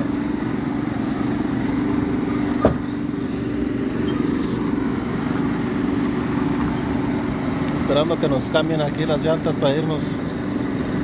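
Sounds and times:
engine humming: 0.0 - 11.0.

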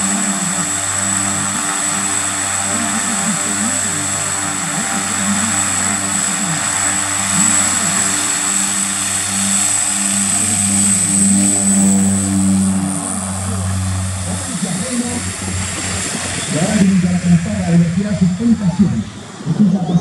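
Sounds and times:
high turbine whine: 0.0 - 20.0
propeller drone: 0.0 - 20.0.

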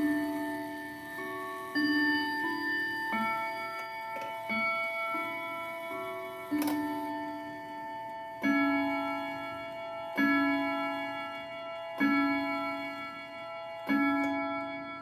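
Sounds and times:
clock chime tune: 0.0 - 15.0
deep ringing clock strikes: 0.0 - 15.0.

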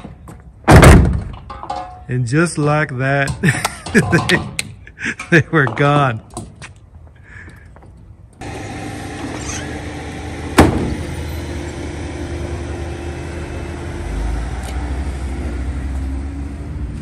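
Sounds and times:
sharp loud bang: 0.7 - 1.3, 10.6 - 11.0
vehicle engine idling: 8.4 - 17.0.

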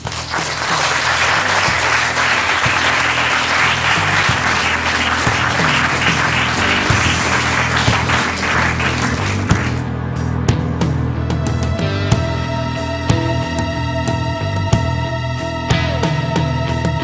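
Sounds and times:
audience applauding: 0.0 - 9.8
background music: 0.0 - 17.0.

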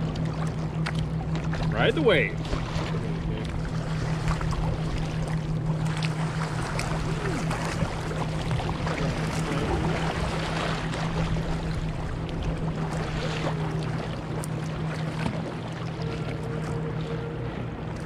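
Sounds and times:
paddle splashes and drips: 0.0 - 18.0
steady low hum: 0.0 - 18.0
water lapping against kayak: 0.0 - 18.0.

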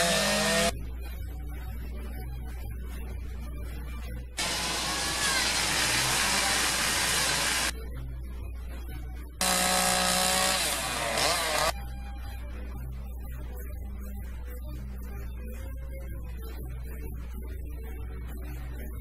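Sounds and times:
angle grinder grinding wood: 0.0 - 0.7, 4.4 - 7.7, 9.4 - 11.7
chainsaw revving and cutting wood: 0.0 - 0.7, 4.4 - 7.7, 9.4 - 11.7.

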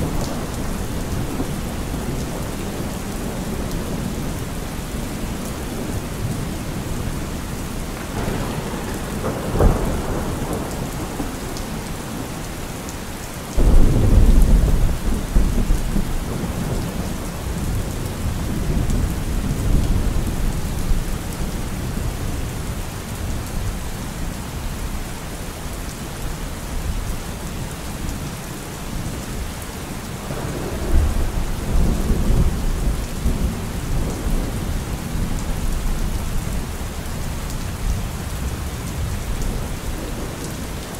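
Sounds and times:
thunder rumbling: 0.0 - 12.6, 13.6 - 23.3, 30.2 - 40.9
steady rain: 0.0 - 40.9
loud thunderclap: 8.0 - 11.8, 13.6 - 20.2.

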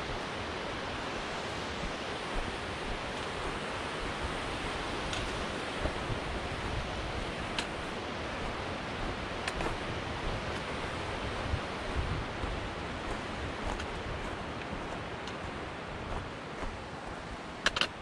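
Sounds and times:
wind noise on microphone: 0.0 - 18.0
footsteps on rocky trail: 4.9 - 18.0.

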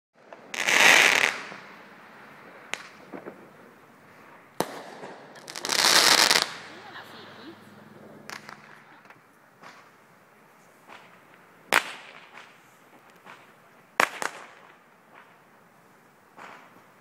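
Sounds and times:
loud firework bangs: 0.2 - 10.0, 10.8 - 15.4, 16.3 - 17.0
distant firework pops: 2.7 - 3.6, 4.6 - 6.7, 8.2 - 10.0, 10.8 - 15.5, 16.3 - 17.0.

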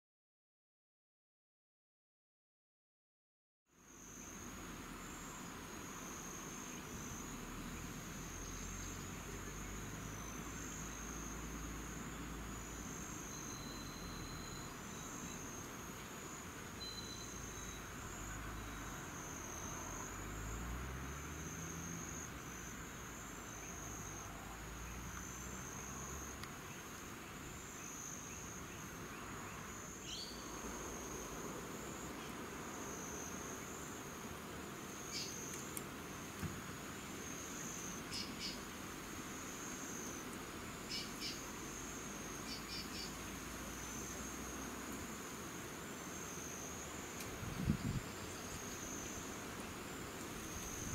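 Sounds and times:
insects chorus: 3.7 - 50.9
faint bird chirps: 13.2 - 15.4, 16.8 - 17.9, 27.8 - 30.6, 38.1 - 38.6.

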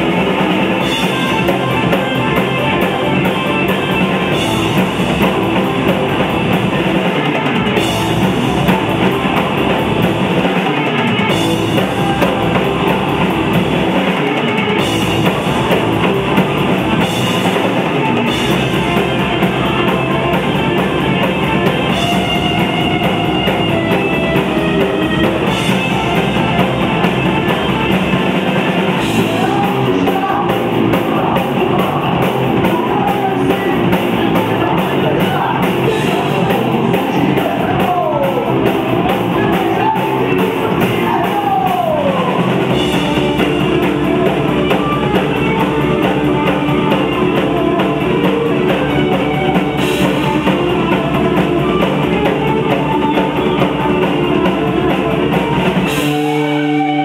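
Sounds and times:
drum kit: 0.0 - 57.0
electric guitar: 0.0 - 57.0.

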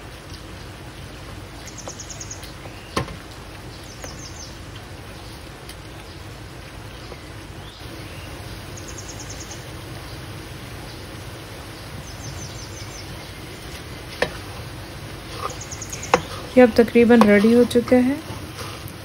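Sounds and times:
food crackling in hot oil: 0.0 - 19.0
low background noise: 0.0 - 19.0
wooden spoon dragging in pan: 13.6 - 19.0.

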